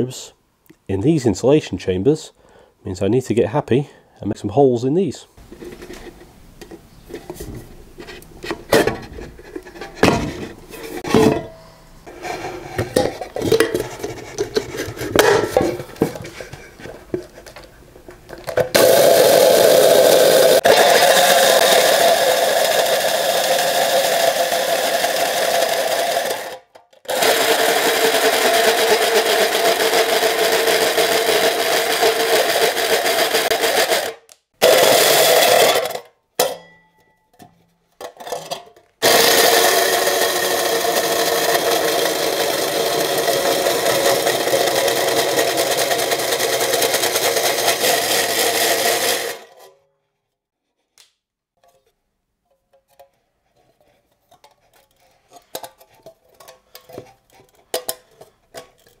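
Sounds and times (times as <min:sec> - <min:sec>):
drill cutting through thin metal: 0:18.8 - 0:35.9, 0:39.0 - 0:49.6.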